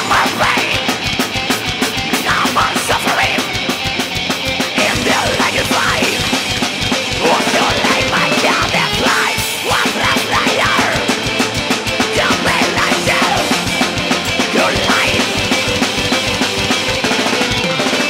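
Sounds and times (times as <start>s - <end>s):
electric guitar: 0.0s - 18.0s
fast dense drumming: 0.0s - 18.0s.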